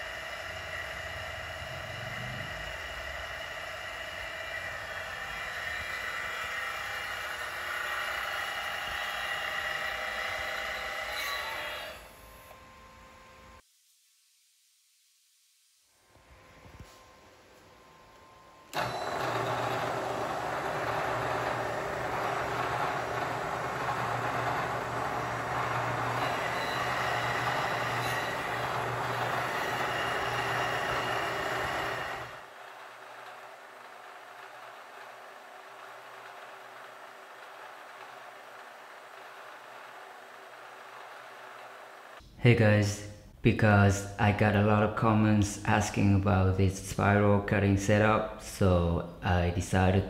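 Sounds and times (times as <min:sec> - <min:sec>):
low hum: 0:00.0 - 0:13.6
milling machine whine: 0:00.0 - 0:13.6, 0:16.1 - 0:42.2.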